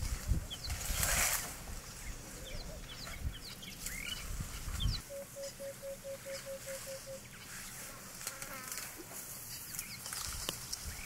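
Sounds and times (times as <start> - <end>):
low piping bird notes: 2.0 - 7.5.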